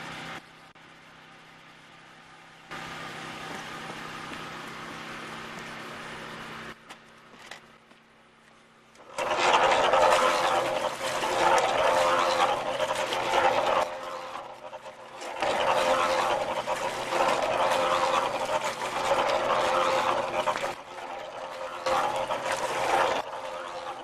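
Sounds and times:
cement mixer running: 0:00.0 - 0:08.1, 0:08.7 - 0:24.0
wet mortar sloshing in drum: 0:09.0 - 0:24.0.

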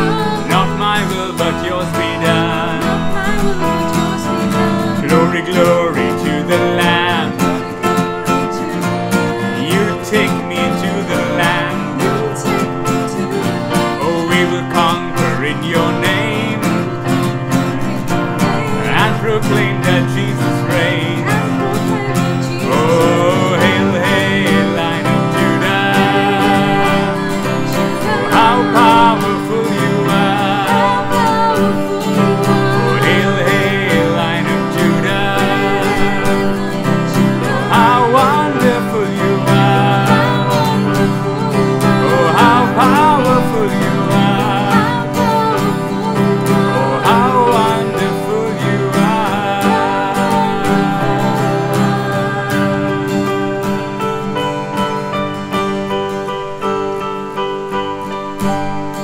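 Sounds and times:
woman singing: 0:00.0 - 0:10.2, 0:20.7 - 0:53.5
man singing: 0:00.0 - 0:54.1
electronic keyboard: 0:00.0 - 0:59.0
strummed acoustic guitar: 0:00.0 - 0:59.0.

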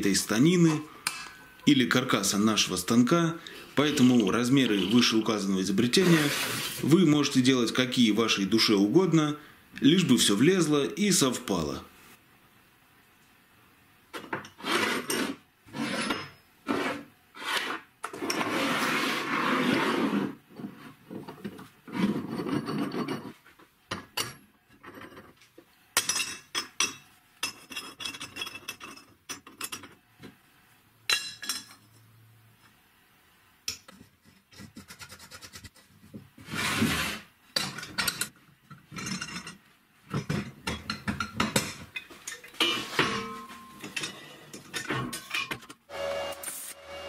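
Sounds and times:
metal scraping on wood: 0:03.8 - 0:06.9, 0:14.5 - 0:23.4.

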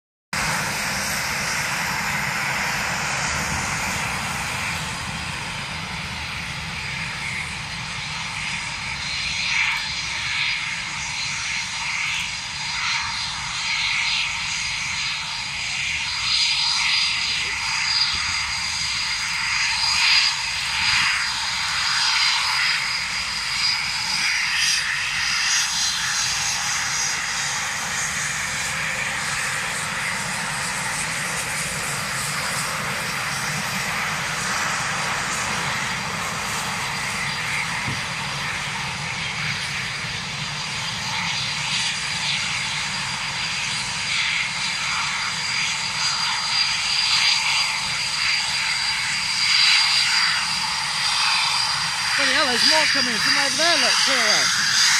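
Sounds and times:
high jet whine: 0:00.4 - 0:54.9
jet engines running: 0:00.4 - 0:54.9.

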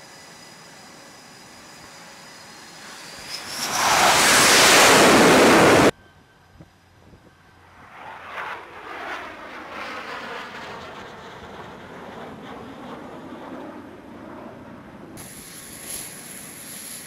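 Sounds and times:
jet engines roaring: 0:00.0 - 0:17.0
jet landing on carrier deck: 0:01.4 - 0:05.9, 0:07.5 - 0:17.0
wind on microphone: 0:03.5 - 0:05.9.

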